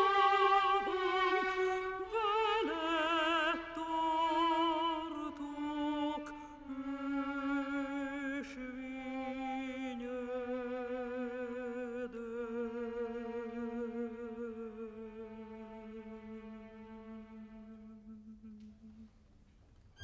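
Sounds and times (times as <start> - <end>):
operatic soprano singing: 0.0 - 19.1.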